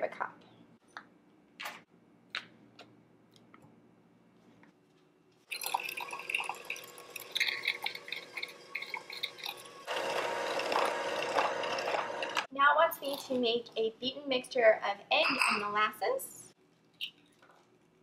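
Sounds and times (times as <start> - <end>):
electric hand mixer running: 7.0 - 12.5.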